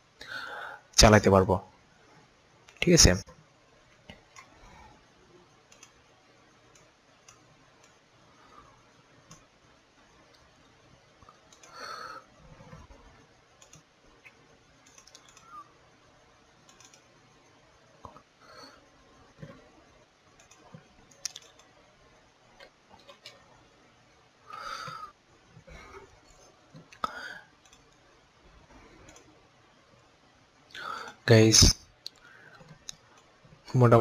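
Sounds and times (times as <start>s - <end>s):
faint computer mouse clicks: 5.7s - 6.0s, 11.3s - 11.8s, 13.6s - 15.6s, 16.6s - 17.1s, 26.8s - 28.0s.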